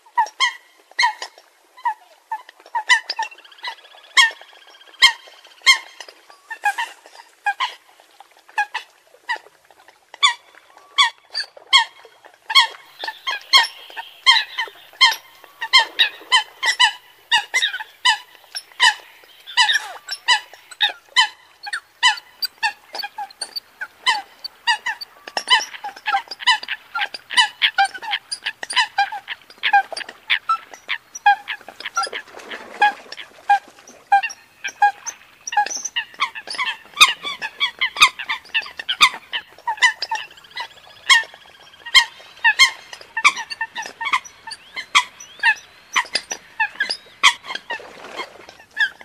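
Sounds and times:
coots calling: 12.6 - 33.4, 34.1 - 49.0.

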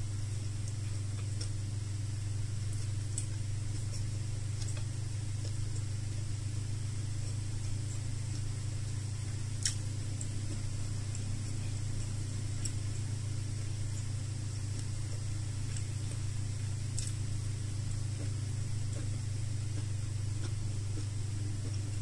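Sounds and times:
steady low hum: 0.0 - 22.0
chewing clicks: 0.6 - 1.6, 2.7 - 6.4, 7.2 - 22.0.

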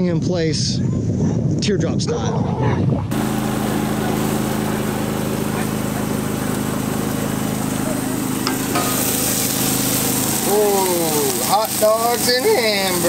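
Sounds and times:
generator engine humming: 3.1 - 13.0.

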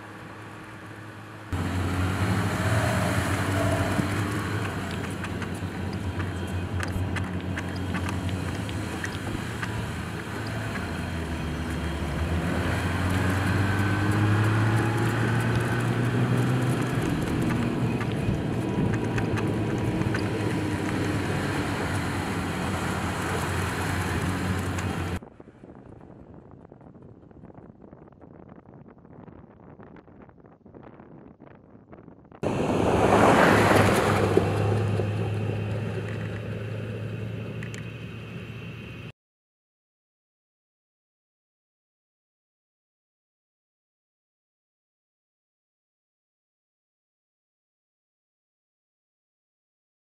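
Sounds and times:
scattered ticks: 3.9 - 11.4
pickup engine under load: 32.4 - 39.1.

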